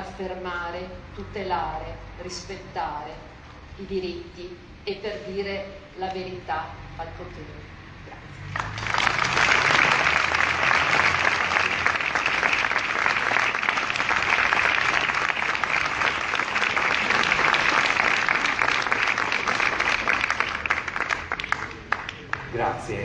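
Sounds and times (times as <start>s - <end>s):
crowd applauding: 8.4s - 23.0s.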